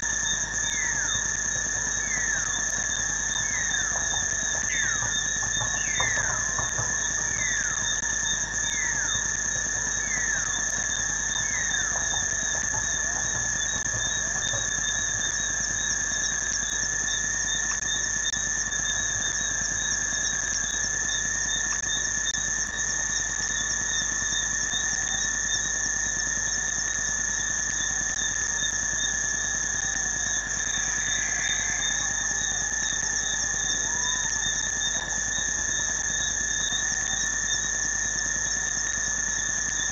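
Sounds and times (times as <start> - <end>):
fast pulsing insect chirp: 0.0 - 39.9
insect trills: 0.0 - 39.9.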